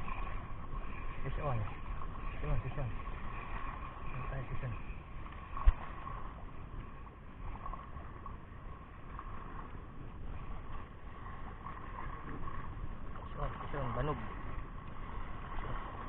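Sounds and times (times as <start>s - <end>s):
spinning reel whirring: 0.0s - 8.1s
water noise: 0.0s - 16.0s
wind: 0.0s - 16.0s.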